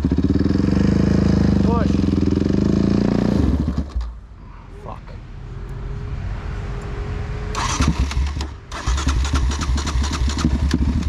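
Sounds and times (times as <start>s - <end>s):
engine firing in rapid bursts: 0.0s - 4.1s, 7.5s - 11.0s
electric starter cranking: 7.5s - 11.0s.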